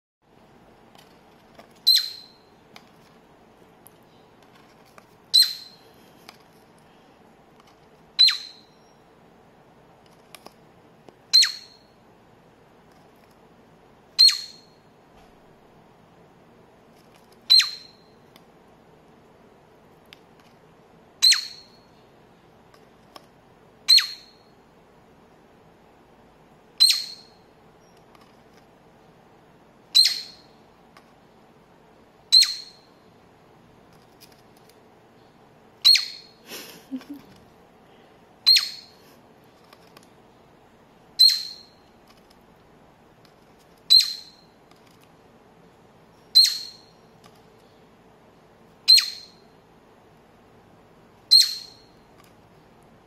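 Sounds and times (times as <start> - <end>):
cockatiel chirping: 1.8 - 2.6, 5.3 - 5.8, 8.2 - 9.0, 11.3 - 12.0, 14.2 - 14.9, 17.4 - 18.2, 21.2 - 21.9, 23.9 - 24.5, 26.8 - 27.9, 29.9 - 30.6, 32.3 - 33.0, 35.8 - 36.4, 38.4 - 39.0, 41.2 - 41.9, 43.8 - 44.6, 46.2 - 47.1, 48.8 - 49.5, 51.3 - 52.0.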